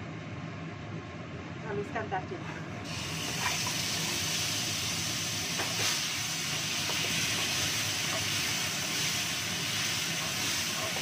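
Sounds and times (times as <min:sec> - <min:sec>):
paste sizzling in hot oil: 0:02.9 - 0:11.0.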